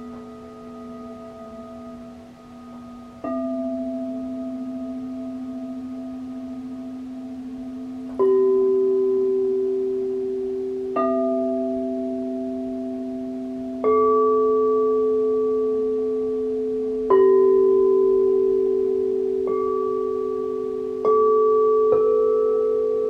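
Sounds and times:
singing bowls struck with mallet: 0.0s - 23.0s.

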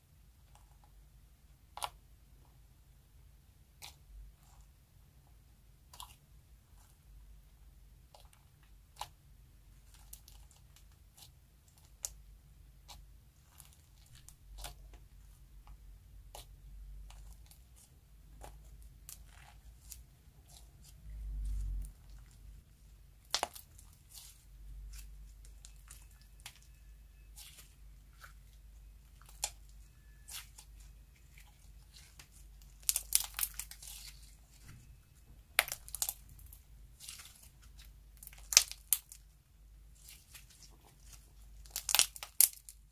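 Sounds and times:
slime clicking and popping: 32.8s - 34.0s, 35.5s - 37.5s, 38.2s - 39.2s, 41.6s - 42.8s.

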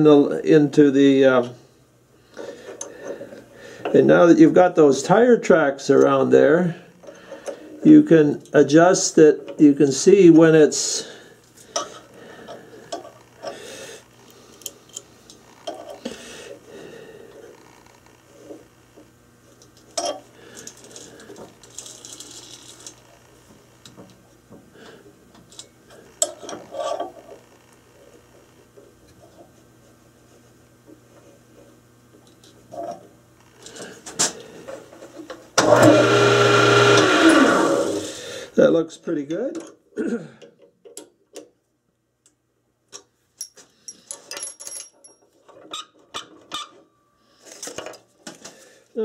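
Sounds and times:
lathe motor humming: 35.6s - 38.2s.

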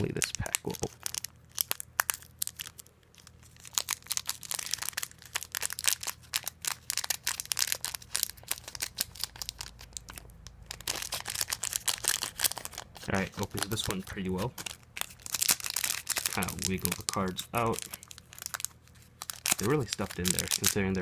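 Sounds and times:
foil wrapper crinkling: 0.0s - 21.0s.

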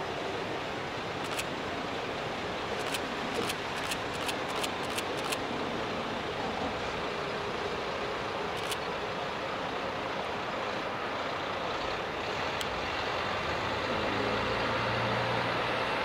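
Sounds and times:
steady rushing background: 0.0s - 6.5s
diesel railcar crossing bridge: 0.0s - 16.0s.

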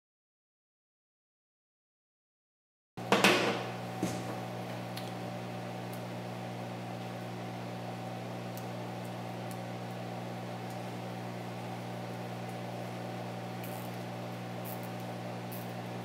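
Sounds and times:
steady mechanical hum: 3.0s - 16.0s.

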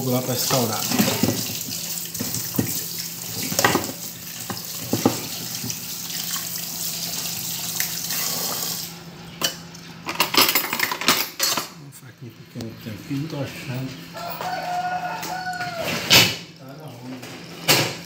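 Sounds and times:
tap running into a metal pot: 0.5s - 5.8s
knocks against a pot: 0.9s - 2.8s, 3.5s - 5.8s.

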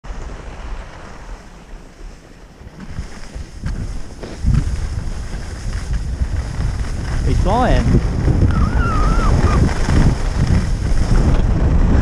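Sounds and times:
wind buffeting microphone: 0.1s - 12.0s
skis hissing over snow: 2.0s - 11.3s.

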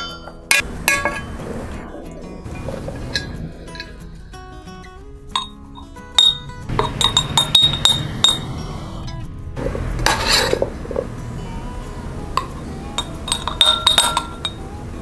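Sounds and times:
soft instrumental music: 0.0s - 15.0s
spoon clinking on glass jar: 5.3s - 8.5s, 12.4s - 14.6s
spoon scraping vegetables: 9.6s - 11.1s.

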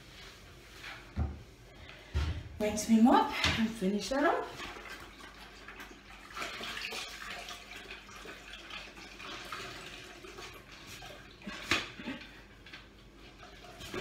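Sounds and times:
mop sloshing in bucket of water: 3.5s - 12.1s, 13.2s - 14.0s.

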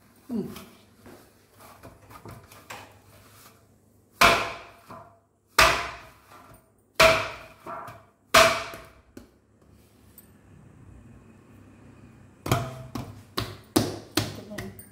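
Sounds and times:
dough thumping on metal plate: 4.2s - 6.4s, 7.0s - 9.3s, 12.4s - 14.8s.

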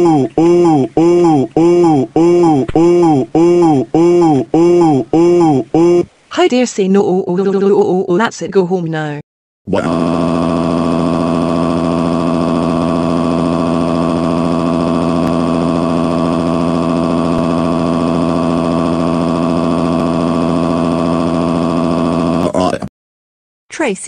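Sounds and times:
loud steady drone: 0.0s - 6.1s, 9.7s - 22.5s.

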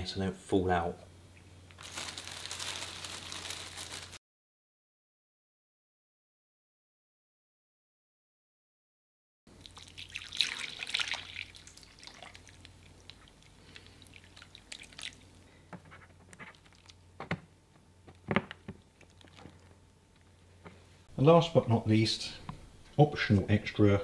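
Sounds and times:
water splashing onto plants: 9.7s - 13.2s.

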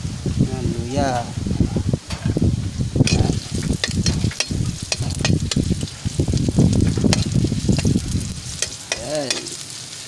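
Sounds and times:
ginger and garlic sizzling in oil: 2.1s - 10.0s
metal spatula scraping a pan: 3.0s - 6.1s, 7.0s - 9.6s.

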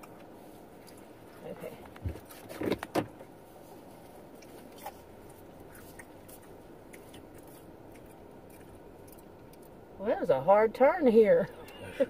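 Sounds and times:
car cabin hum: 0.0s - 12.0s
chewing and crunching fries: 4.0s - 10.0s.

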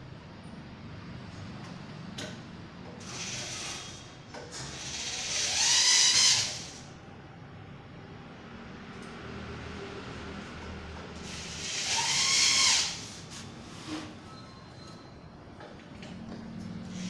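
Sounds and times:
electric drill whining: 3.0s - 4.0s, 4.7s - 6.9s, 11.3s - 13.1s.

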